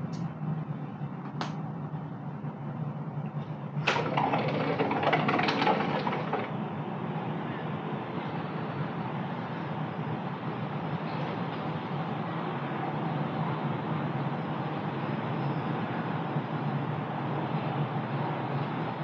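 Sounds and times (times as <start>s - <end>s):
distant city traffic hum: 0.0s - 19.0s
click: 0.1s - 0.3s.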